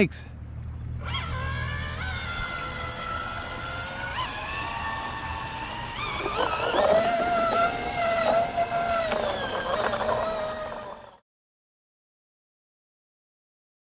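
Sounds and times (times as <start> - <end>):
model boat motor whining: 1.0 - 11.2
water rushing past hull: 1.0 - 11.2.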